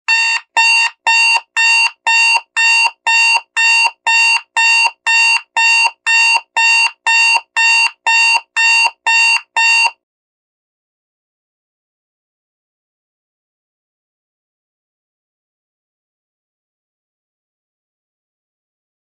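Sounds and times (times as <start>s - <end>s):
alarm clock beeping: 0.1s - 10.0s.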